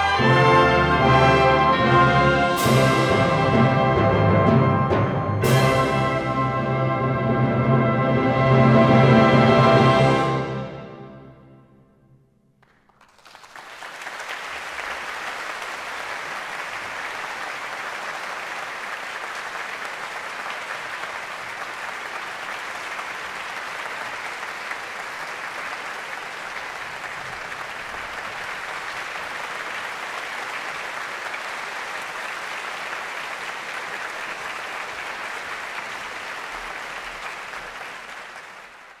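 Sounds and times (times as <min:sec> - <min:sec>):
audience applauding: 0:12.6 - 0:39.0.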